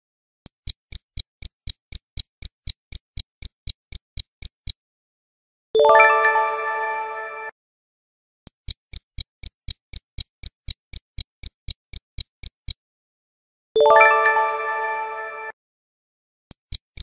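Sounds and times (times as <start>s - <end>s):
stopwatch ticking: 0.5s - 4.8s, 8.5s - 12.8s, 16.5s - 17.0s.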